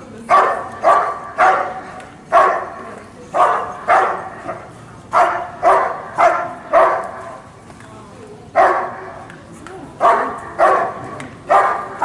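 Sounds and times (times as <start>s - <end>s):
dog barking: 0.3s - 2.7s, 3.4s - 4.3s, 5.2s - 7.2s, 8.6s - 9.1s, 10.0s - 12.0s.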